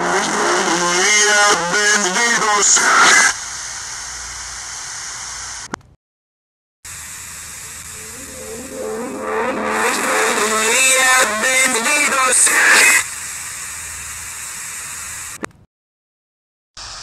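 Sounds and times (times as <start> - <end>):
static hiss: 2.2 - 5.8, 6.9 - 15.4
garbled warbling voice: 8.0 - 12.7.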